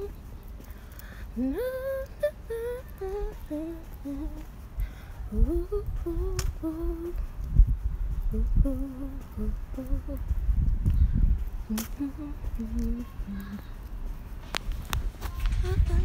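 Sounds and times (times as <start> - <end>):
low rumble on microphone: 0.0 - 16.0
woman humming: 1.4 - 4.4, 5.3 - 7.2, 8.3 - 10.2, 11.7 - 13.7.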